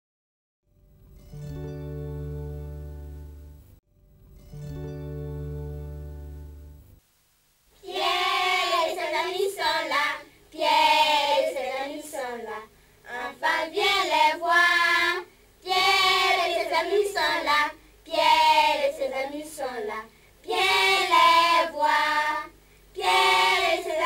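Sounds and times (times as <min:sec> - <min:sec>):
held instrumental chord: 0:01.2 - 0:07.0
children singing: 0:07.8 - 0:24.0.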